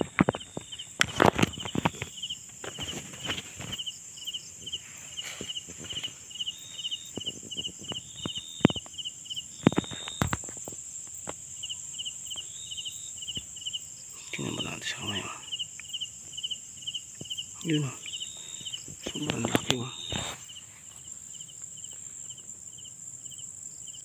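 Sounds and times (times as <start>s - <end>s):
rustles and knocks in undergrowth: 0.0s - 11.6s, 17.2s - 22.3s
crickets chirping: 0.0s - 24.0s
high insect drone: 0.0s - 24.0s.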